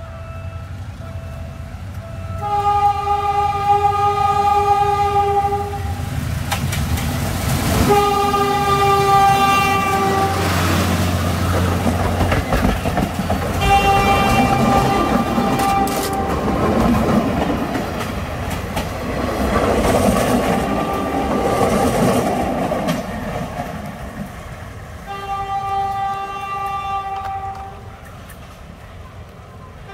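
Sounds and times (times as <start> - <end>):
train horn blasts: 0.0 - 6.1, 7.8 - 10.9, 13.6 - 16.6, 20.5 - 21.6, 25.0 - 28.0
train wheels rumbling and clattering: 4.7 - 29.8.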